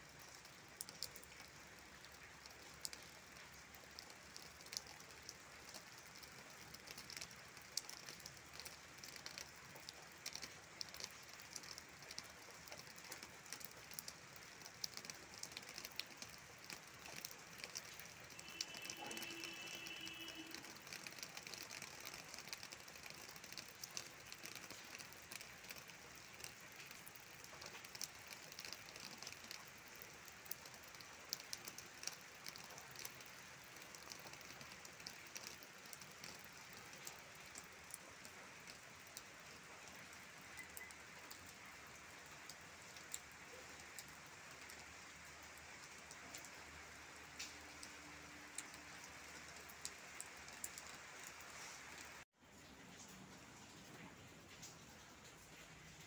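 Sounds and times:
light rain on leaves: 0.0 - 56.0
faint steady tone: 17.8 - 21.2, 40.0 - 41.4.

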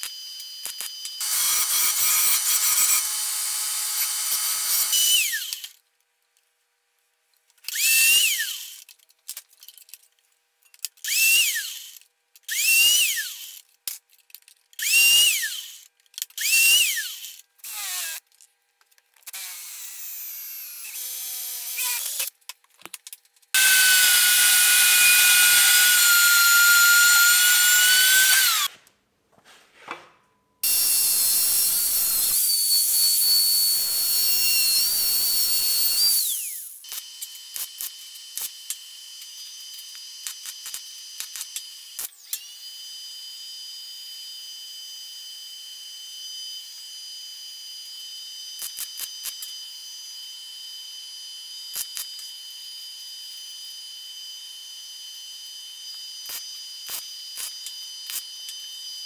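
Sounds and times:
angle grinder cutting steel tube: 0.7 - 5.6, 19.3 - 22.3, 23.6 - 28.8, 30.6 - 38.8
drill boring into steel: 1.1 - 5.6, 11.1 - 13.6, 14.8 - 15.8, 16.4 - 18.2, 19.3 - 22.3, 23.6 - 28.7, 30.6 - 59.0
power tool bursts rising in pitch: 23.6 - 28.7, 30.6 - 37.9.

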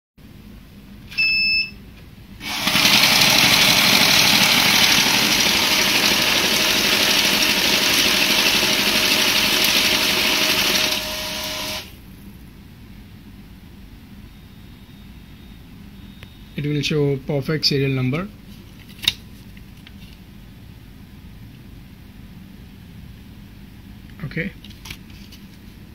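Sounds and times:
short machine beep: 1.1 - 1.8
note counter rollers whirring: 2.4 - 12.0.

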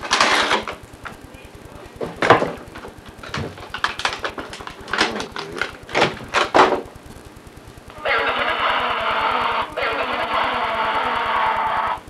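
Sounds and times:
objects knocking and rustling: 0.0 - 1.2, 2.0 - 6.9.

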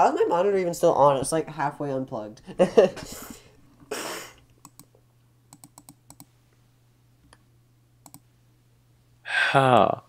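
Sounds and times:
breathy hiss: 3.1 - 4.4
mouse and keyboard clicks: 4.6 - 4.9, 5.5 - 6.3, 8.0 - 8.2.

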